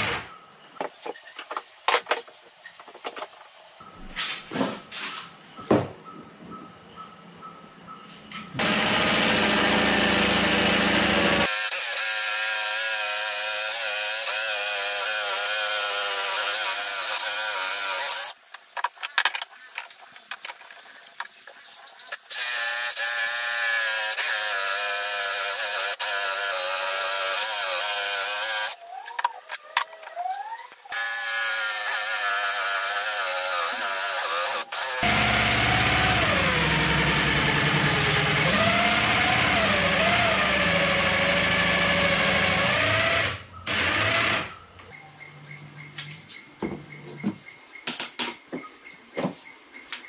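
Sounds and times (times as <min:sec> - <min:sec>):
jigsaw cutting ceramic tile: 0:08.6 - 0:18.4, 0:22.2 - 0:28.8, 0:30.9 - 0:44.5.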